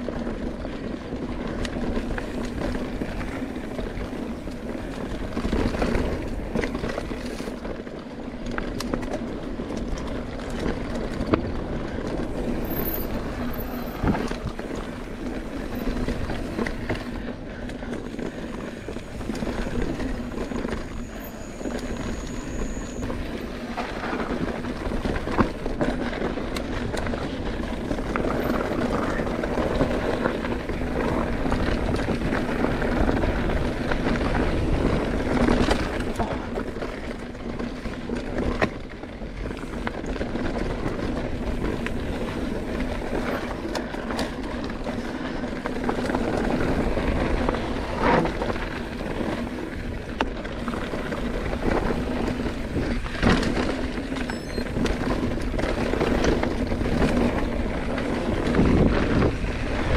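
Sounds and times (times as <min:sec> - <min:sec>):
bike rattling: 0:00.0 - 0:59.9
tyre and wind rush: 0:39.3 - 0:59.9.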